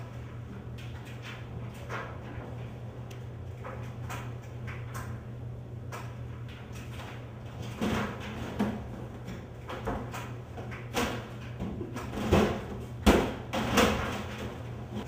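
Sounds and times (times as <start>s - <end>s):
steady low hum: 0.0s - 15.0s
body bumping against washing machine: 7.6s - 15.0s.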